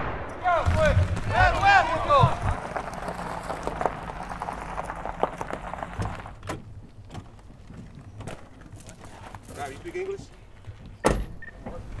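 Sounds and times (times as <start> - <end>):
van engine humming: 1.3 - 9.5.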